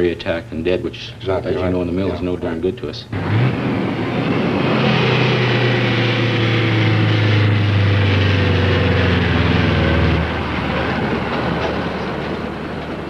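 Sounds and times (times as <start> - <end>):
truck diesel engine passing: 3.1 - 13.0.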